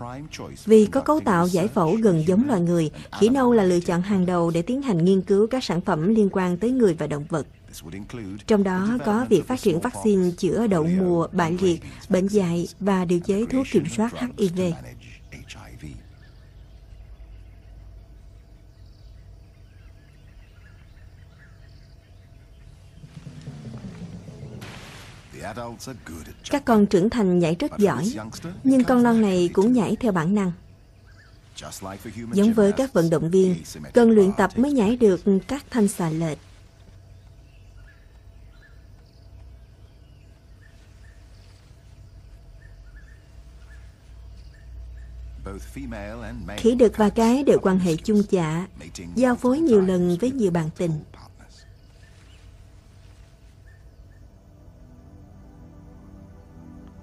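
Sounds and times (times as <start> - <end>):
faint high bird calls: 0.0 - 54.5
bird chirps: 0.0 - 54.6
low steady rumble: 0.0 - 57.0
low rumble: 20.3 - 28.6, 51.7 - 57.0.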